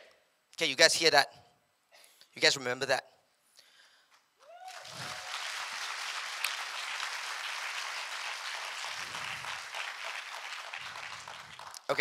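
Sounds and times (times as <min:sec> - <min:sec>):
audience clapping: 0:04.6 - 0:12.0.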